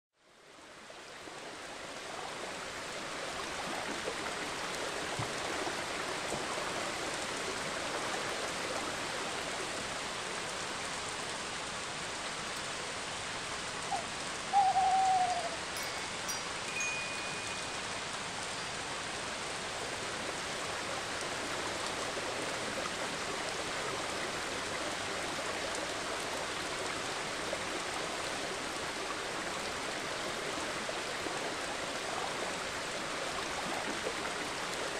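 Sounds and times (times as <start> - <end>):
rushing water: 0.2 - 34.9
owl hoot: 13.8 - 15.8.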